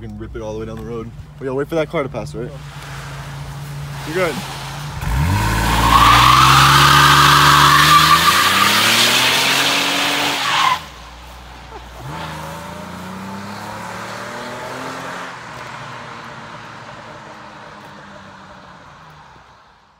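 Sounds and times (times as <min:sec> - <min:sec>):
car engine revving: 0:02.4 - 0:18.6
tyres squealing: 0:02.6 - 0:11.0.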